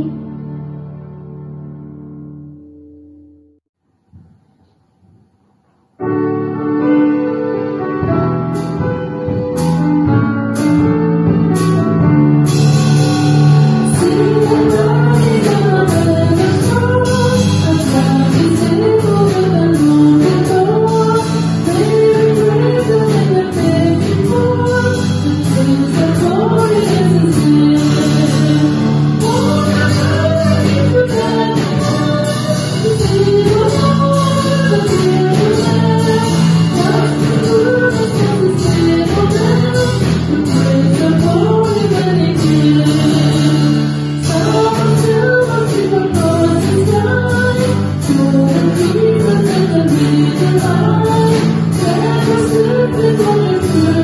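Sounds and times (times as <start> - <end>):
band playing a carol: 12.4 - 54.0
woman singing: 13.7 - 54.0.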